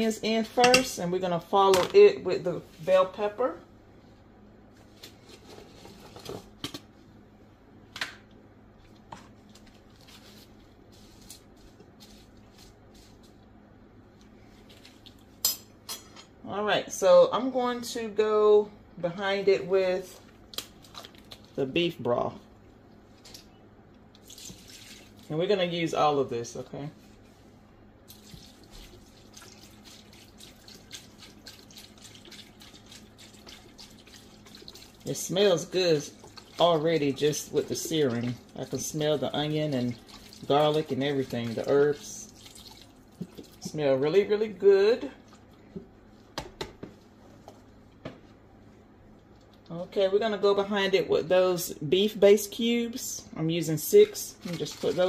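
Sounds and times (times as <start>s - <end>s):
faint steady hum: 0.0s - 55.0s
utensil stirring with soft knocks: 26.9s - 44.3s.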